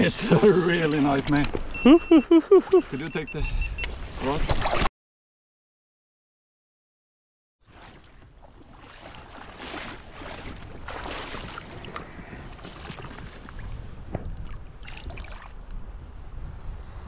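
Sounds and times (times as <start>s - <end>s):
wind buffeting microphone: 10.3s - 17.0s.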